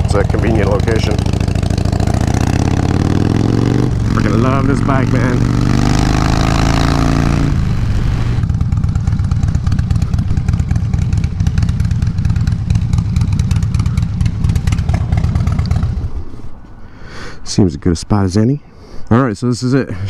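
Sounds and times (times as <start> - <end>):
motorcycle engine rumbling: 0.0 - 16.8
wind noise: 1.3 - 8.5.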